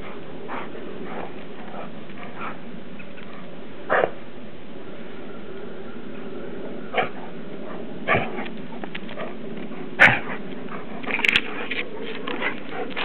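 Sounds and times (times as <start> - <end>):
dogs yelping and barking: 6.7 - 13.0.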